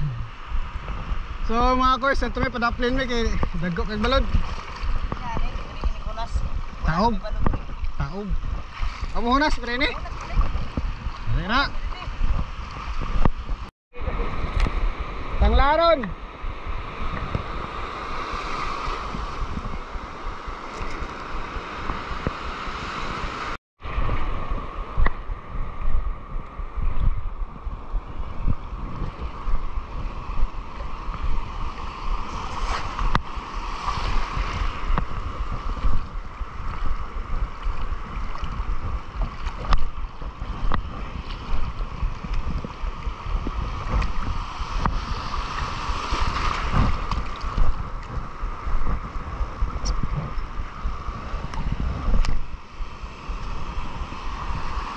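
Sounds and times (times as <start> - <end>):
surf washing and churning: 0.0 - 54.9
wind buffeting microphone: 0.0 - 54.9.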